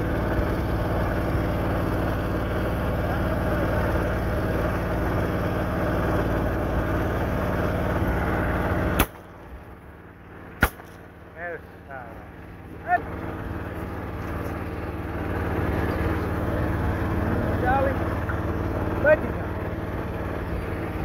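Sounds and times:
boat engine running: 0.0 - 21.0
sharp crack: 8.9 - 9.3, 10.6 - 11.1
shotgun shot: 9.0 - 9.2, 10.6 - 11.0.

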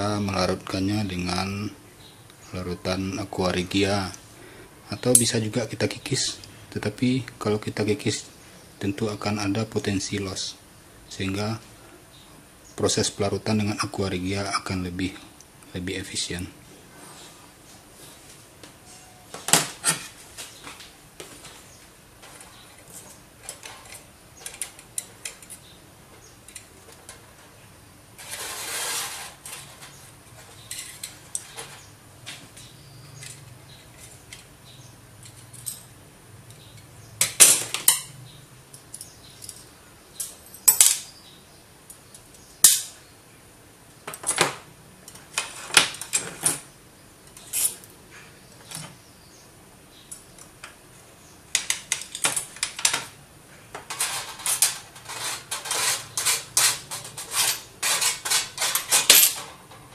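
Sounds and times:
metal scraping on steel plate: 28.2 - 30.0, 53.9 - 59.4.

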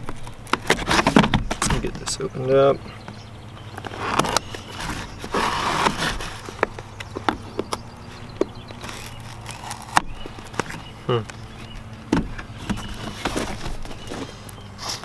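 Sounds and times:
knife cutting packing tape: 3.9 - 6.5, 8.8 - 10.7.

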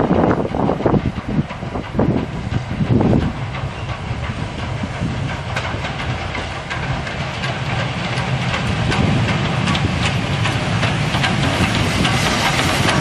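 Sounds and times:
steam train rumbling past: 0.0 - 13.0
train wheels clicking: 0.0 - 13.0.

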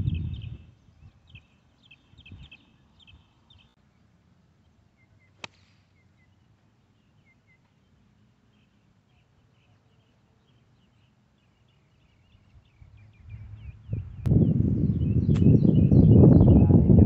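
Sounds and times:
birds chirping: 0.0 - 16.9
golf club striking ball: 5.4 - 6.0.

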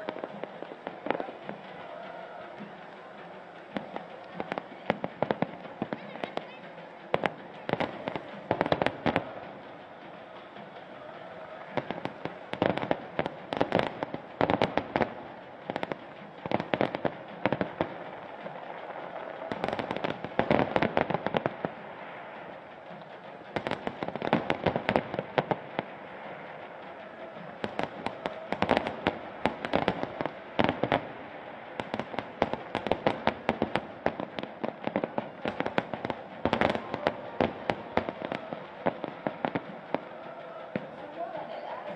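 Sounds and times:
fireworks bangs and crackles: 0.0 - 41.9
steady background noise: 0.0 - 41.9.

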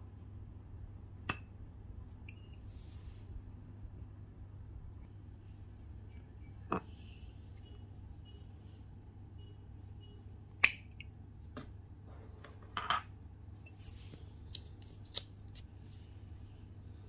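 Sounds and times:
metal cap clicking off bottle: 10.6 - 11.1.

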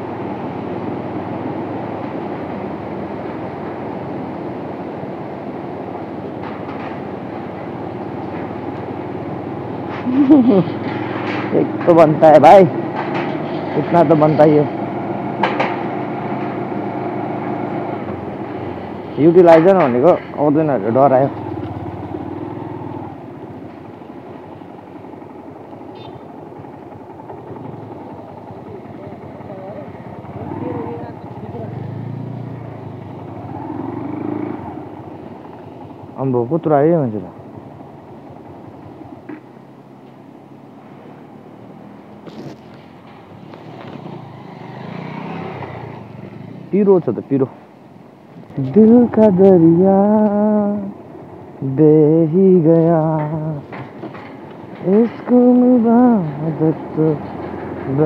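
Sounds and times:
motorcycle engine at low revs: 0.0 - 46.8, 48.3 - 58.0
tyres rattling over steel deck: 53.2 - 58.0.

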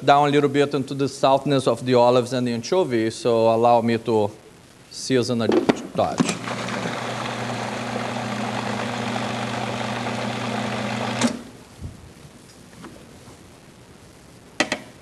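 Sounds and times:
food processor motor running: 6.4 - 11.3.

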